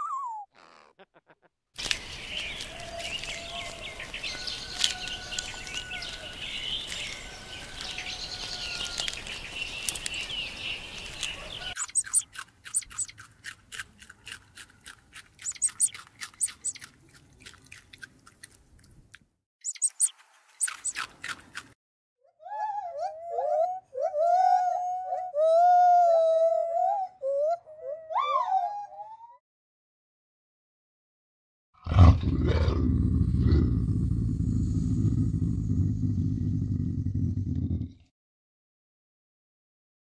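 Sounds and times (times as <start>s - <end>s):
small birds chirping: 1.8s - 13.3s, 14.2s - 17.5s, 19.6s - 21.4s
outdoor hush: 9.0s - 21.8s
rabbits chewing greens: 11.0s - 19.0s, 20.0s - 21.8s.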